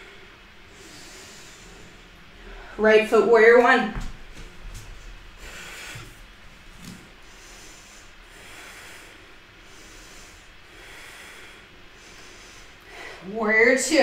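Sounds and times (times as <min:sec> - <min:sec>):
person breathing slowly: 0:00.0 - 0:02.8, 0:05.3 - 0:13.3
bare foot thudding on mat: 0:03.9 - 0:05.0.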